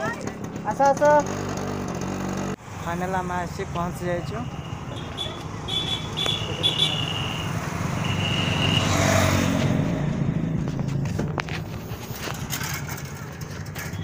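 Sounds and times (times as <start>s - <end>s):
low hum of road traffic: 0.0s - 14.0s
motor vehicle passing: 4.8s - 13.9s.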